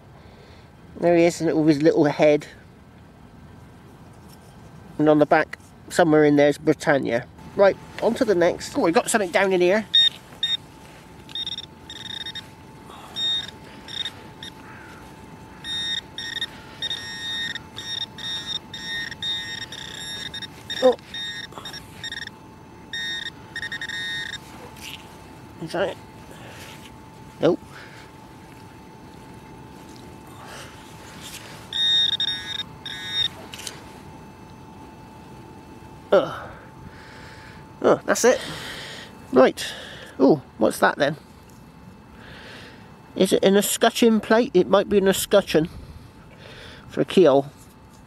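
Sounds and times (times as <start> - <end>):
probe in loose soil: 7.4 - 35.4
metal detector beeping: 7.4 - 38.6.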